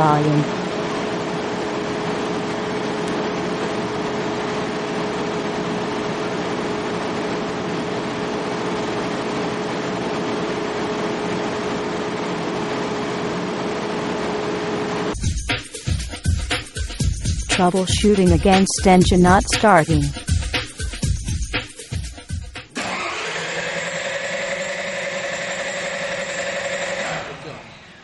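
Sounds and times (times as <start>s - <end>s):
generator humming: 0.0s - 28.0s
machine room rush: 22.7s - 28.0s.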